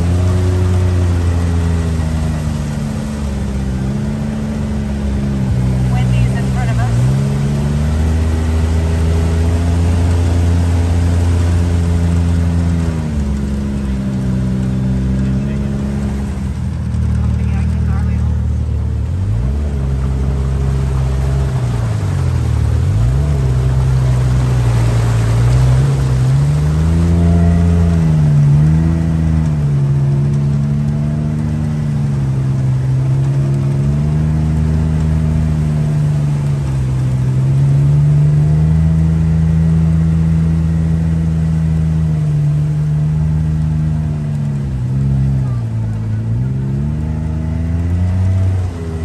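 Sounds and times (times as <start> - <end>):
vehicle engine revving: 0.0 - 49.0.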